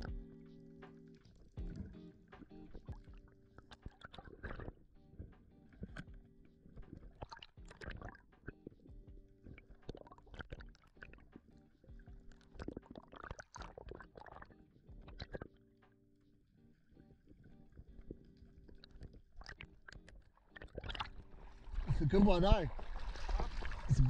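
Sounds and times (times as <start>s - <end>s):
muffled underwater knocks: 0.0s - 15.6s
soft background music: 0.0s - 24.0s.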